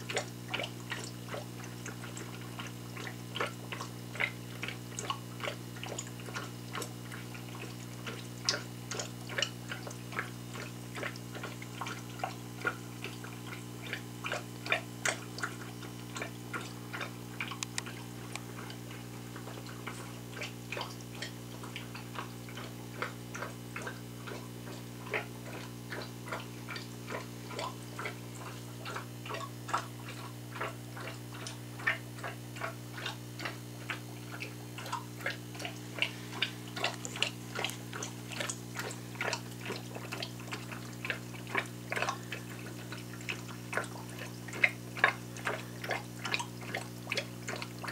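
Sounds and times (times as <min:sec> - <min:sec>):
steady low hum: 0:00.0 - 0:47.9
air bubbles clicking and popping: 0:08.5 - 0:20.0, 0:25.2 - 0:47.9.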